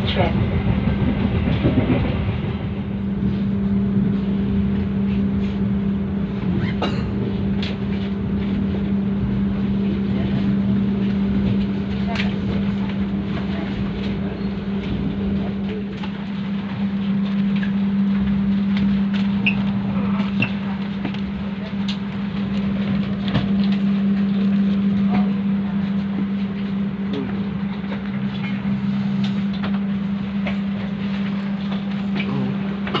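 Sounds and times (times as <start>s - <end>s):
knocks and clicks of passengers moving: 0.0s - 33.0s
train carriage hum: 0.0s - 33.0s.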